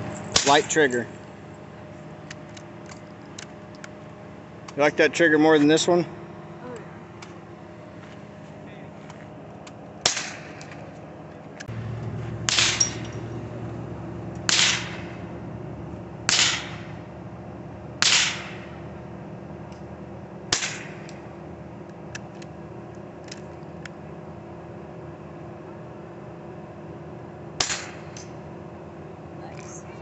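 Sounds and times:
rifle shots with echo: 10.0 - 10.6, 12.4 - 13.1, 14.5 - 15.2, 16.3 - 17.0, 18.0 - 18.7.

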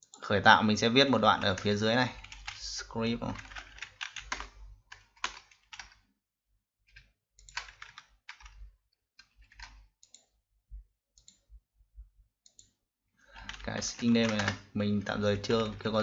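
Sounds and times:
keyboard typing: 1.1 - 6.1, 6.9 - 10.4, 12.4 - 16.0.

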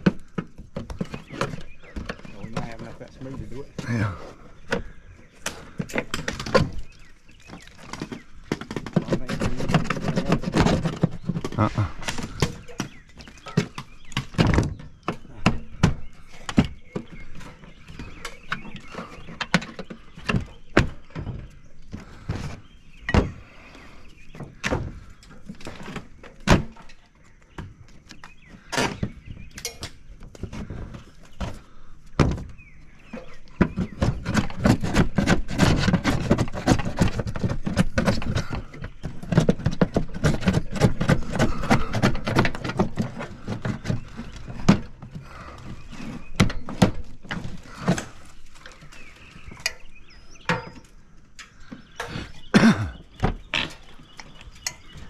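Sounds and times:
knocks and thunks on siding: 0.0 - 23.5, 24.3 - 26.9, 28.5 - 48.3
indistinct voices: 2.3 - 4.4, 11.4 - 12.4.

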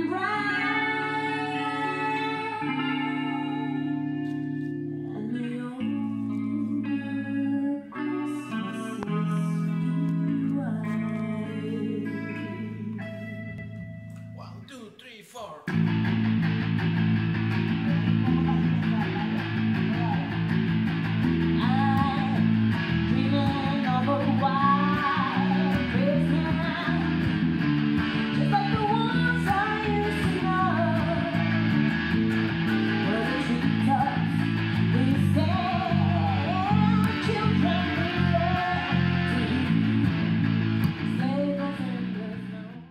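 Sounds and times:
woman singing: 0.0 - 13.7, 21.5 - 27.4, 28.2 - 31.8, 32.7 - 42.9
electric guitar chords: 0.0 - 14.7, 15.7 - 42.9
electric bass line: 15.7 - 42.9.

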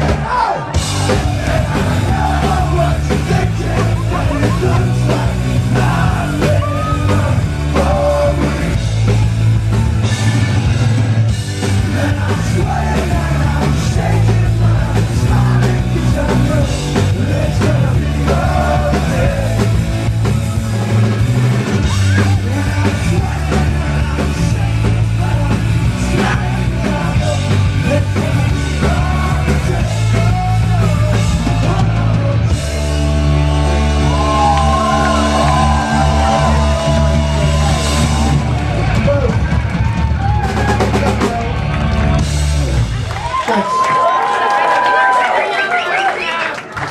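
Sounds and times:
person singing: 0.0 - 8.8
rock band playing: 0.0 - 46.0.

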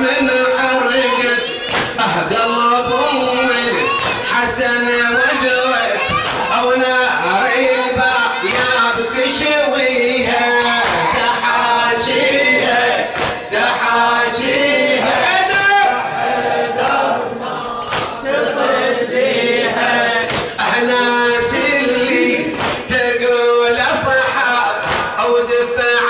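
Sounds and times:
men chanting a lament: 0.0 - 26.0
person reciting: 0.0 - 26.0
hands slapping chests: 1.7 - 2.0, 4.0 - 4.3, 6.1 - 6.5, 8.5 - 8.8, 10.8 - 11.1, 13.1 - 13.4, 17.8 - 18.2, 20.3 - 20.6, 22.5 - 22.9, 24.8 - 25.2.

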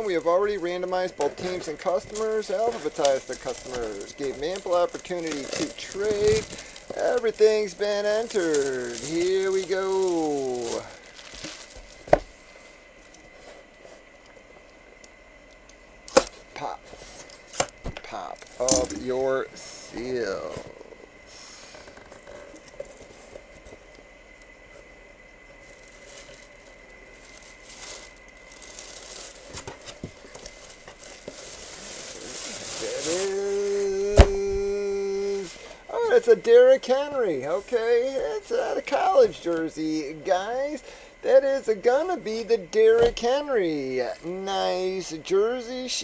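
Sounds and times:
faint rustling and handling: 0.0 - 14.8, 16.4 - 40.8
fabric and cardboard rustling: 25.6 - 34.9.

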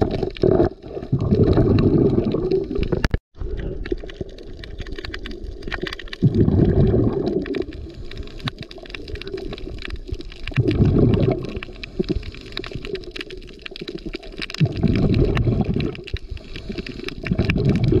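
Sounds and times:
crackle of small clicks: 0.0 - 18.0
diver's exhaled bubbles: 0.0 - 18.0.

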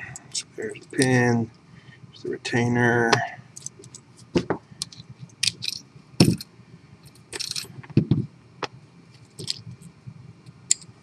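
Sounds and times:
metal padlock parts clinking: 4.8 - 6.5, 7.1 - 7.9, 9.4 - 10.0, 10.7 - 11.0.

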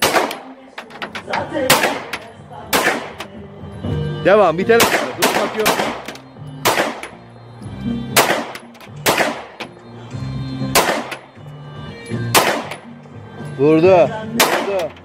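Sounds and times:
pistol shots: 0.0 - 0.6, 1.5 - 3.3, 4.8 - 7.2, 8.1 - 9.8, 10.7 - 11.4, 12.3 - 12.9, 14.4 - 15.0
music: 0.0 - 15.0.

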